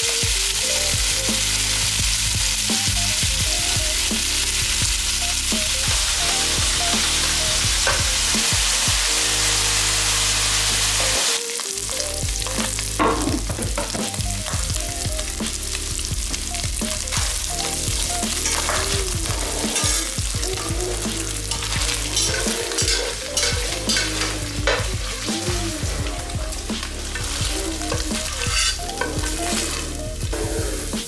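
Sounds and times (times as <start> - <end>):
filling sizzling in a pan: 0.0 - 31.0
utensil scraping pan: 18.3 - 26.0, 26.8 - 30.0.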